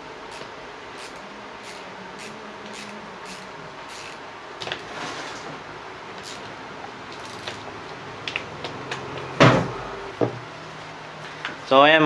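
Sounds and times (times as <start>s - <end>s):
ratchet wrench clicking: 0.3s - 4.2s, 7.2s - 7.6s.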